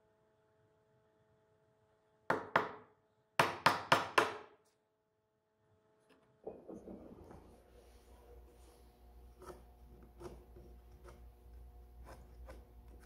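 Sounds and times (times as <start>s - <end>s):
hammer striking chisel: 2.3s - 4.6s
soft rubbing and handling: 6.7s - 13.0s.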